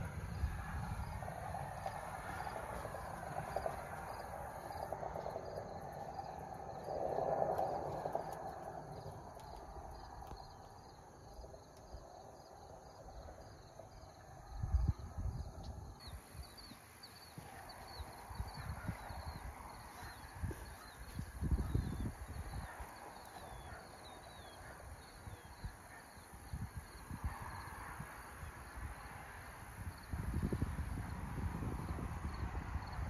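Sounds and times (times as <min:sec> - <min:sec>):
insects chirping rhythmically: 0:15.3 - 0:27.7.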